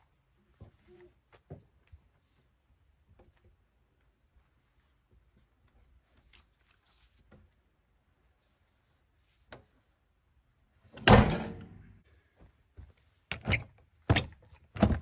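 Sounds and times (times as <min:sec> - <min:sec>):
heavy clunk with ringing tail: 0:11.0 - 0:11.9
knocks and clanks on metal: 0:11.0 - 0:12.0.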